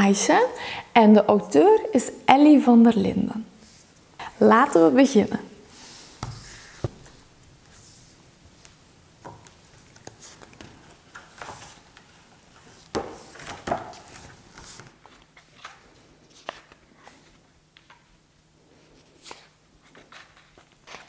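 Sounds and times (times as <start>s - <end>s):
book pages turning: 5.8s - 18.1s, 18.8s - 21.0s
book knocking on wooden table: 6.2s - 7.1s
taps and rustles: 6.2s - 7.2s, 12.8s - 15.8s.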